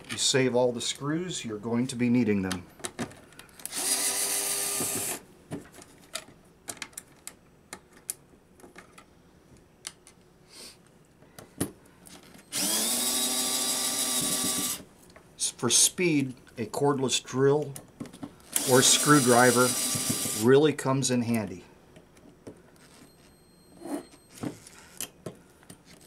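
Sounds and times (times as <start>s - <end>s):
cordless drill whirring: 3.7s - 5.2s, 12.5s - 14.8s, 18.4s - 20.4s.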